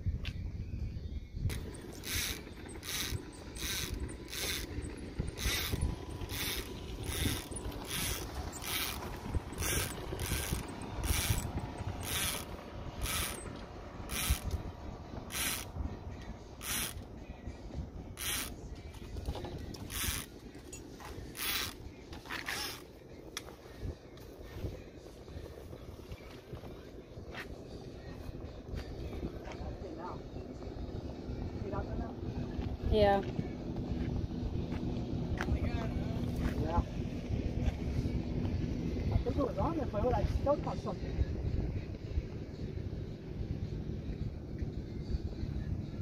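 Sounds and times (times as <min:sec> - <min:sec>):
low wind rumble: 0:00.0 - 0:46.0
fishing reel clicking: 0:01.5 - 0:14.6, 0:15.3 - 0:15.7, 0:16.6 - 0:17.0, 0:18.2 - 0:18.6, 0:19.8 - 0:20.3, 0:21.3 - 0:22.8.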